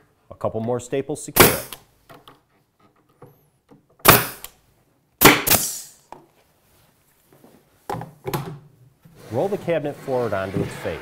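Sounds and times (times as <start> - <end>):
power stapler firing into plywood: 1.4 - 1.8, 4.0 - 4.5, 5.2 - 5.8.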